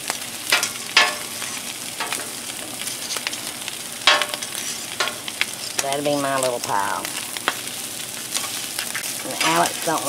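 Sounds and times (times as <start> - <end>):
meat sizzling on a griddle: 0.0 - 10.0
metal spatula scraping griddle: 0.5 - 5.4.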